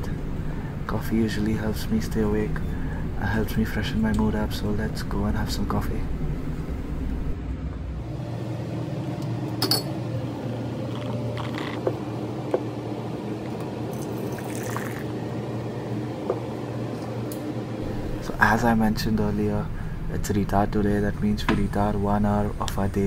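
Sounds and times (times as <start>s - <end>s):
steady low hum: 0.0s - 23.0s
crockery clinking: 9.6s - 10.0s
coffee pouring into a cup: 10.9s - 11.9s, 13.4s - 15.2s.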